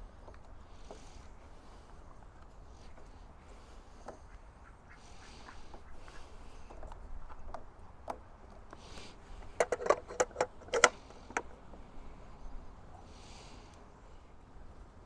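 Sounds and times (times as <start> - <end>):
plastic connector clicking and knocking: 9.4 - 11.5.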